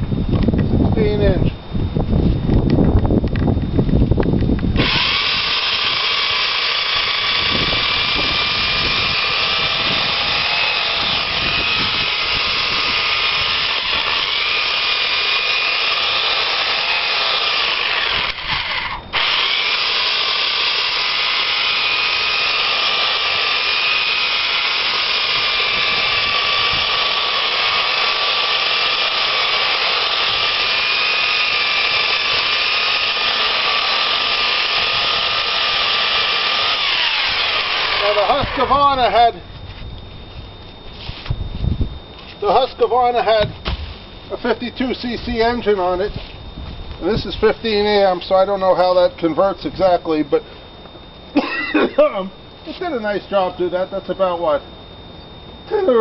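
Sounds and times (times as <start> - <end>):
electric chainsaw cutting log: 4.6 - 39.4.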